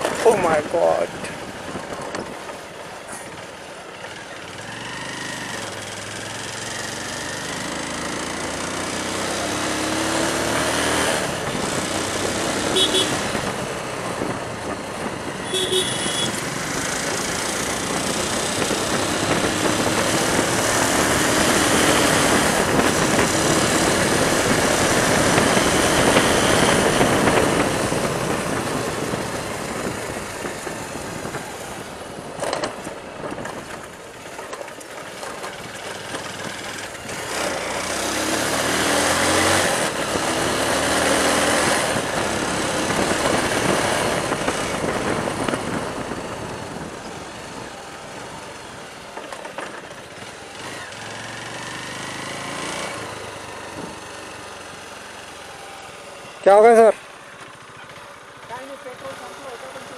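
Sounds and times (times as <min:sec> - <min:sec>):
motorcycle engine: 0:00.0 - 0:59.9
horn beep: 0:12.7 - 0:13.3, 0:15.4 - 0:16.4
wind rush on microphone: 0:16.5 - 0:34.0, 0:41.8 - 0:48.5.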